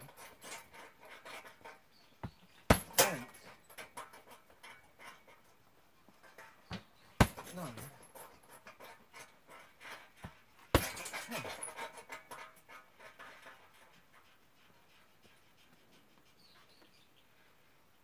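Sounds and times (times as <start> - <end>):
strikes on heavy punching bag: 2.7 - 3.2, 7.2 - 7.6, 10.7 - 11.2.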